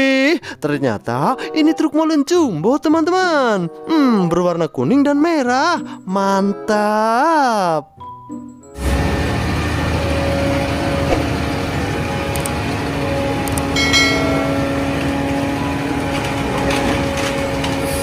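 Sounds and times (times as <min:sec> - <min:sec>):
truck engine running: 0:08.8 - 0:18.0.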